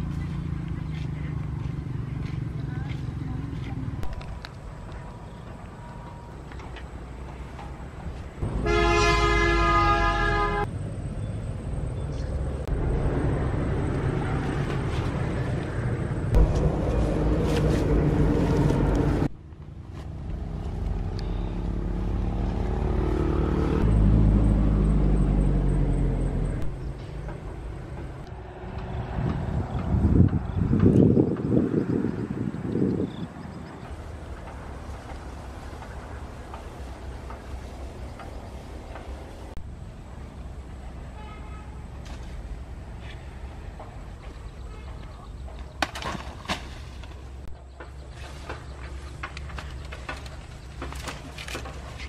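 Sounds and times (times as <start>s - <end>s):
road traffic passing: 0.0s - 52.0s
vehicle horn blaring: 8.5s - 10.7s, 41.2s - 41.8s.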